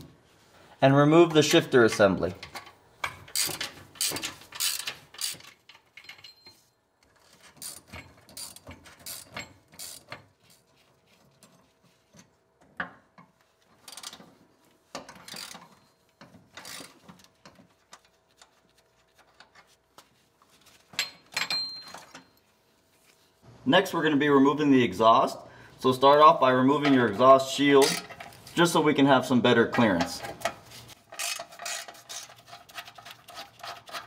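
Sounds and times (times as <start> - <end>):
ratchet wrench clicking: 3.3 - 5.5, 7.6 - 10.1, 31.1 - 31.9.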